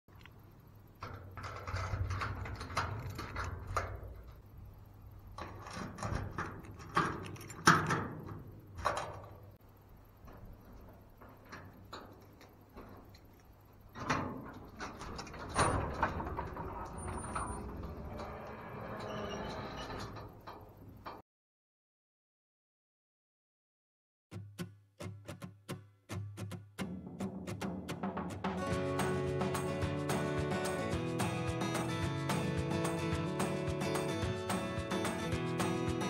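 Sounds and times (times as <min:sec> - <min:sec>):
metal garage door scraping open: 0:01.0 - 0:04.6, 0:05.3 - 0:09.4, 0:14.0 - 0:21.2
keys jingling: 0:06.6 - 0:08.0.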